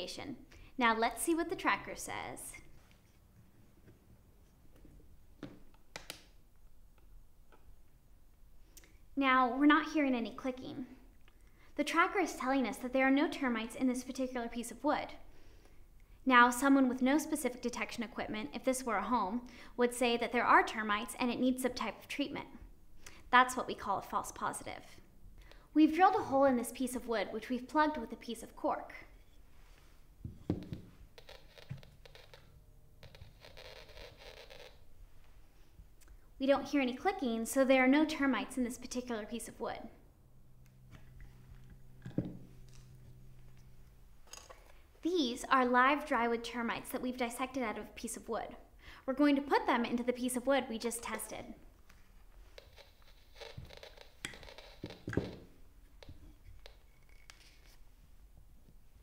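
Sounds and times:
faint steady hiss: 0.0 - 19.9.

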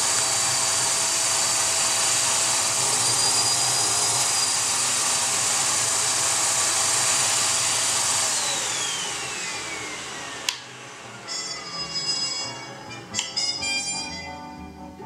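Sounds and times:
vacuum motor whine: 0.0 - 13.6.

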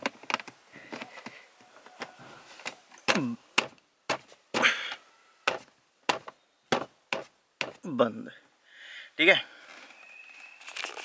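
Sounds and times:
plastic rustling and rubbing: 10.4 - 11.0.

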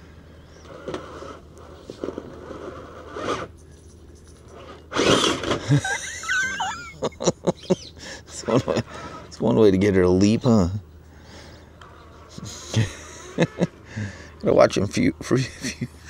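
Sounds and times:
toy truck scraping on rock: 0.6 - 3.6, 4.5 - 5.6
electric motor whine: 4.5 - 5.8.

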